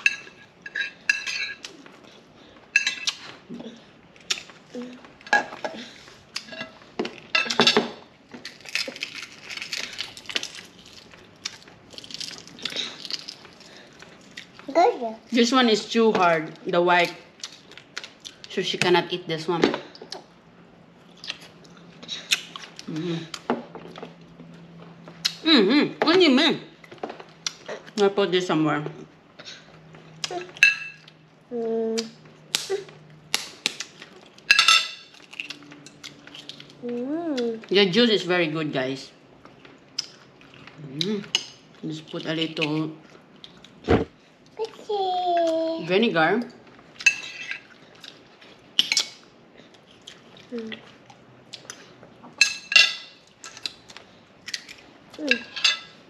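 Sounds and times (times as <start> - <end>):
person humming: 31.5 - 32.1, 36.9 - 37.6.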